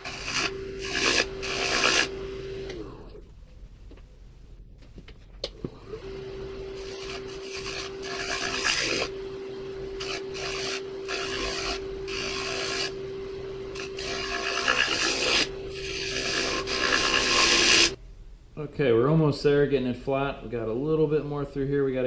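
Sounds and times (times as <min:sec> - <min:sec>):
turning tool scraping wood: 0:00.0 - 0:02.9, 0:06.8 - 0:09.1, 0:10.0 - 0:13.0, 0:13.7 - 0:18.0
lathe motor humming: 0:00.0 - 0:03.2, 0:05.5 - 0:18.0.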